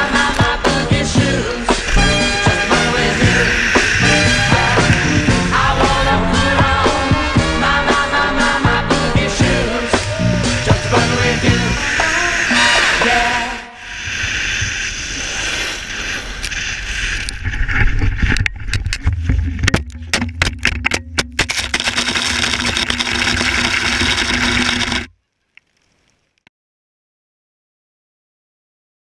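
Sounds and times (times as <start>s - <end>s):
snowboard scraping over snow: 0.0s - 18.3s
wind on microphone: 0.0s - 19.6s.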